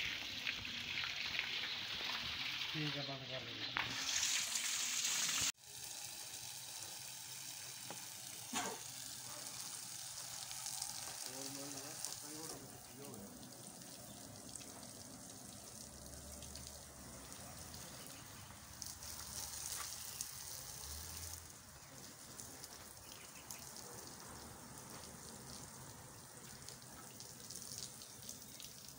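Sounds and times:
water jet hissing and spattering: 0:00.0 - 0:28.9.

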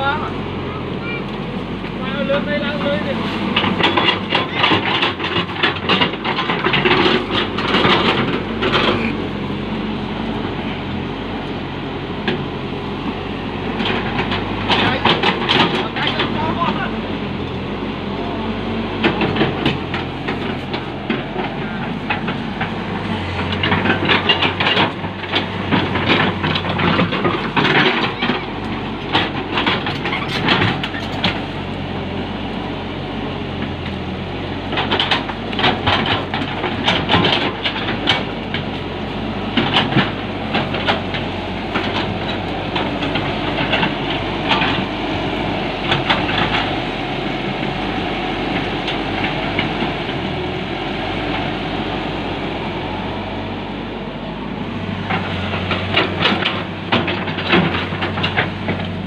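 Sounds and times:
excavator diesel engine running: 0:00.0 - 0:59.0
metallic clanking and rattling: 0:02.3 - 0:09.2, 0:13.7 - 0:16.9, 0:19.0 - 0:31.7, 0:34.6 - 0:51.6, 0:54.6 - 0:59.0.

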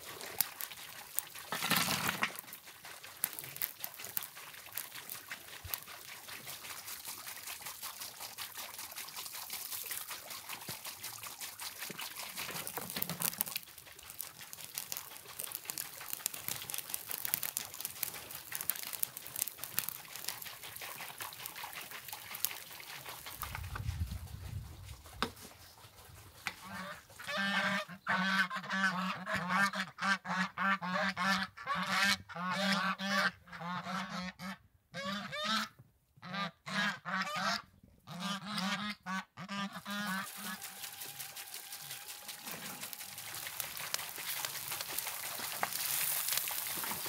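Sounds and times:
water pouring into a pot: 0:00.0 - 0:23.9, 0:39.8 - 0:47.0.

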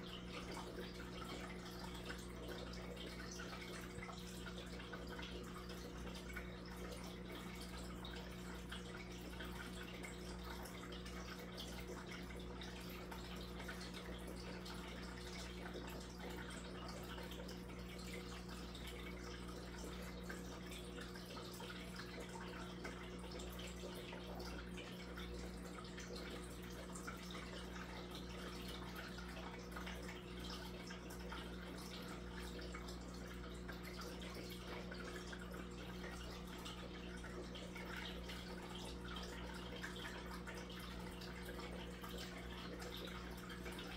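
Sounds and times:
low steady hum: 0:00.0 - 0:43.9
water trickling and splashing: 0:00.0 - 0:43.9.

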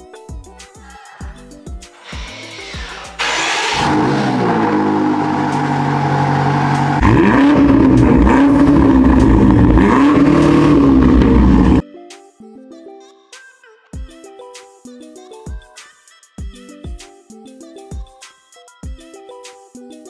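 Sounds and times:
car exhaust idling and revving: 0:02.8 - 0:11.8.

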